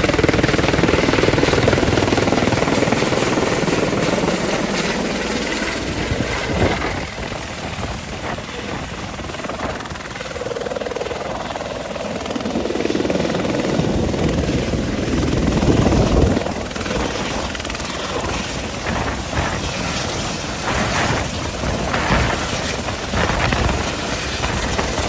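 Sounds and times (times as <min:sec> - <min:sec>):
helicopter rotor and turbine: 0:00.0 - 0:25.0.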